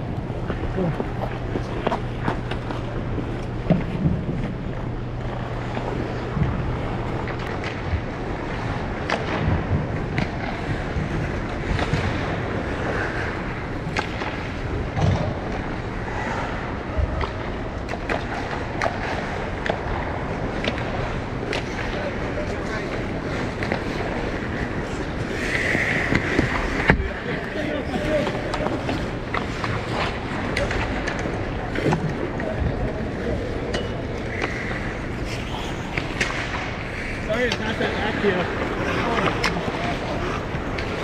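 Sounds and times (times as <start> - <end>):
low hum: 0.0 - 27.5
ice skate blades scraping ice: 23.4 - 30.6, 34.4 - 41.0.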